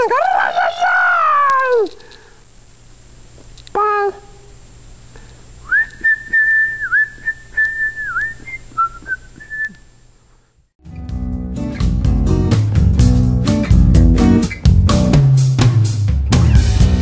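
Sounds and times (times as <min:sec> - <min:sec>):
person whistling a tune: 0:05.7 - 0:09.8.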